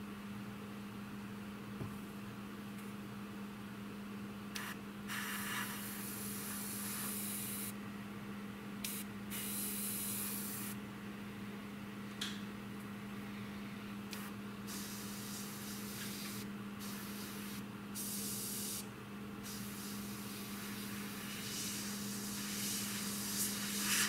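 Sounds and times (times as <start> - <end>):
airbrush spraying hiss: 4.6 - 7.7, 8.9 - 10.8, 14.7 - 18.8, 19.4 - 24.0.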